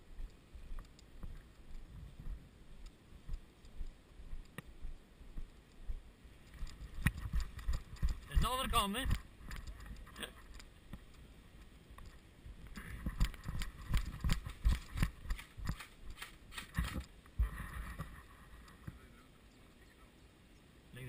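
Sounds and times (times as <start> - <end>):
footsteps running on grass: 6.6 - 9.2, 13.0 - 17.8.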